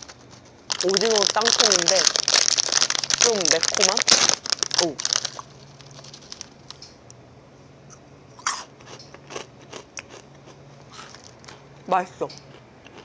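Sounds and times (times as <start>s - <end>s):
person chewing crunchy snack: 0.0s - 6.5s, 7.9s - 11.7s, 12.4s - 13.0s.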